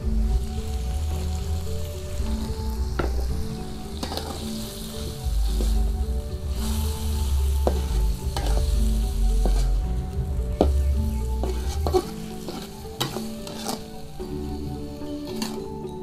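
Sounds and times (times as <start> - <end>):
food sizzling in a wok: 0.0 - 16.0
metal spatula scraping a pan: 3.9 - 16.0.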